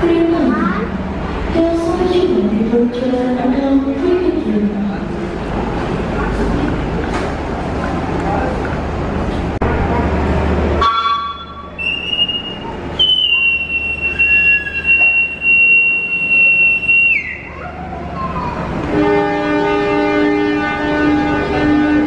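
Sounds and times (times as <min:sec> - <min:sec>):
locomotive horn: 0:10.8 - 0:13.2, 0:18.8 - 0:22.0
whistle long blast: 0:10.8 - 0:17.5.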